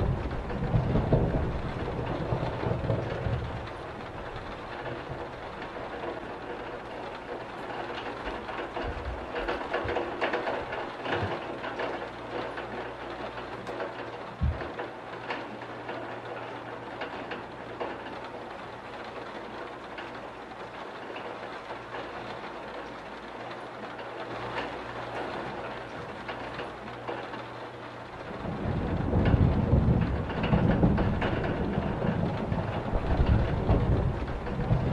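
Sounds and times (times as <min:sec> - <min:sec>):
thunder rumble: 0:00.0 - 0:18.1, 0:28.0 - 0:34.9
steady rain patter: 0:00.0 - 0:34.9
low thump: 0:14.4 - 0:14.7.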